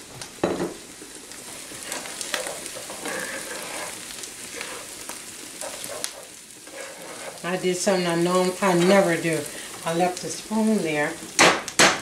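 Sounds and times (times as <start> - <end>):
corn sizzling in a skillet: 0.0 - 12.0
spoon scraping a pan: 1.4 - 9.8.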